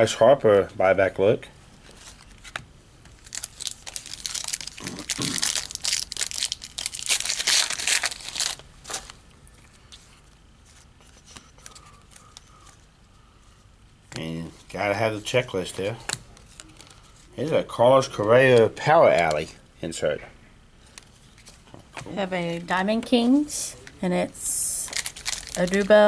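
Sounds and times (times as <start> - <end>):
faint handling sounds: 1.7 - 5.2, 8.0 - 19.6, 20.8 - 22.2
wrapper tearing and crinkling: 2.0 - 9.2, 24.8 - 26.0.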